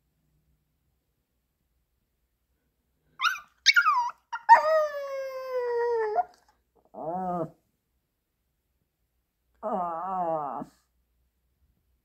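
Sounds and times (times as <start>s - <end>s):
dog yelping cries: 3.2s - 6.4s
dog howling: 9.6s - 10.8s.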